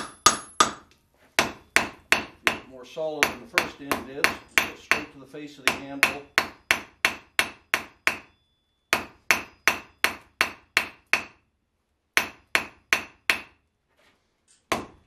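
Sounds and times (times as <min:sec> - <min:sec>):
hammer striking hot steel on anvil: 0:00.0 - 0:11.4, 0:12.2 - 0:13.6.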